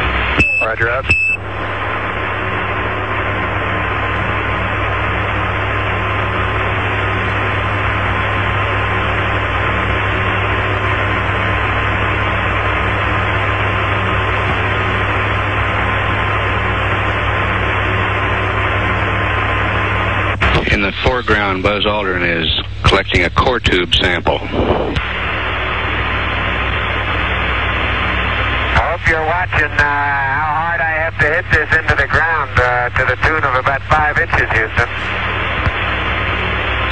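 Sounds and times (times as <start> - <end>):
low hum: 0.0 - 36.9
radio static hiss: 0.0 - 36.9
short high beep: 0.4 - 1.4.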